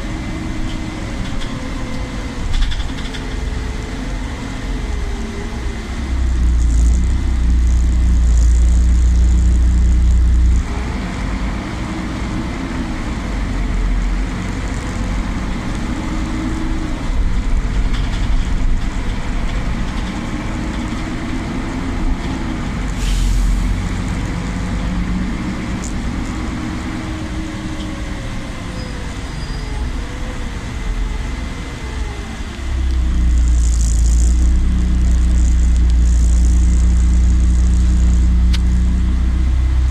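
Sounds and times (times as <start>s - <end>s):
deep rumble: 0.0s - 28.9s, 29.8s - 39.9s
bus engine and drivetrain whine: 0.0s - 39.9s
air hiss: 22.9s - 23.9s.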